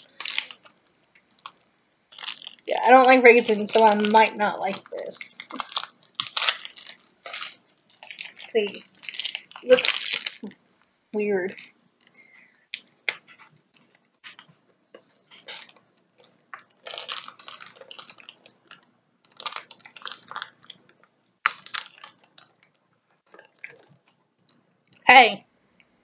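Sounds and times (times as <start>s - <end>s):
crunchy chewing of biscuit bar: 0.0s - 2.7s, 4.7s - 10.6s, 15.3s - 25.0s.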